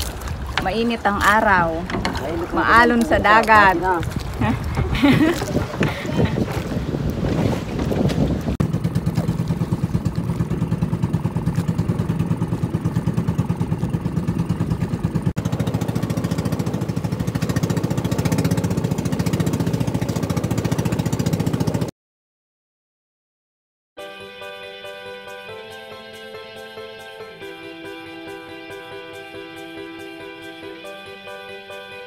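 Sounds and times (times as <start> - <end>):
boat engine chugging: 0.0 - 21.9.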